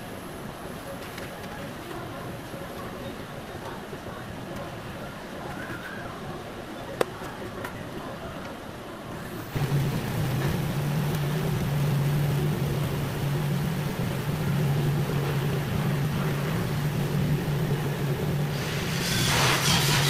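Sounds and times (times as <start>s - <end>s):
constant low hum: 9.2s - 20.0s
welding arc hissing: 18.3s - 20.0s.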